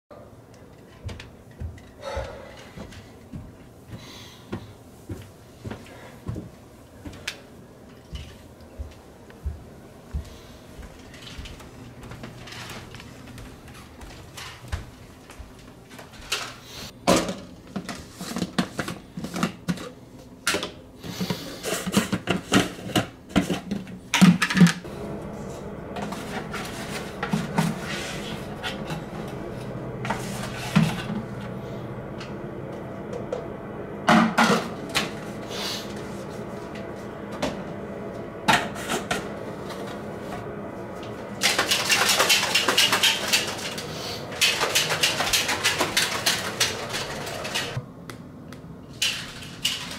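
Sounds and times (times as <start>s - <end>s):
steady rushing noise: 24.8s - 47.8s
dishes and containers clattering: 41.4s - 43.8s, 44.4s - 47.8s.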